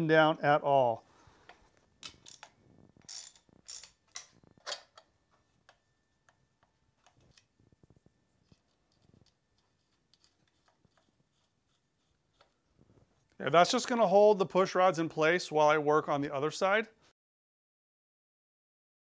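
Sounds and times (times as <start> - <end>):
metal parts clicking and clinking: 2.0 - 5.0.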